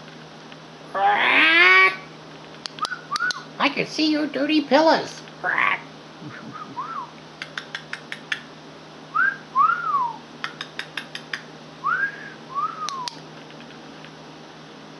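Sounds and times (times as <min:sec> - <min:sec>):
quick sharp clicks: 0:07.4 - 0:08.5, 0:10.4 - 0:11.5, 0:12.9 - 0:13.8.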